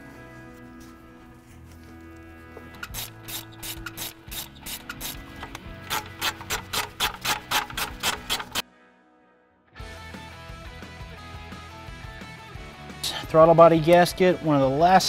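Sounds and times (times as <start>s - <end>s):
background music: 0.0s - 15.0s
ratchet wrench clicking: 2.8s - 8.6s.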